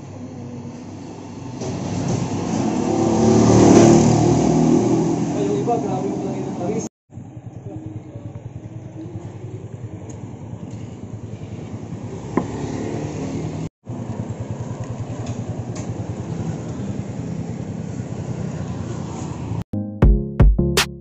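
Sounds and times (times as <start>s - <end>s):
motorcycle engine idling: 7.1s - 18.7s.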